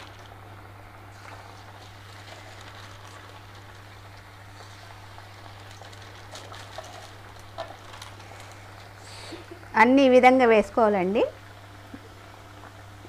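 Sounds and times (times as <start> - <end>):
oil popping: 0.0 - 9.7
fritters sizzling in hot oil: 0.0 - 13.0.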